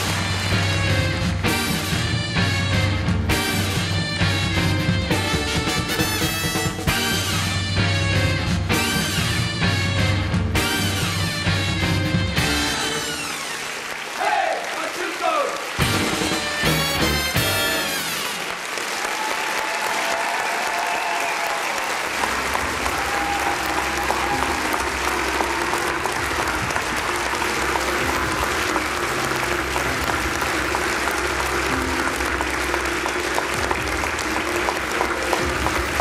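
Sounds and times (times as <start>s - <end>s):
audience applauding: 0.0s - 2.4s, 10.7s - 36.0s.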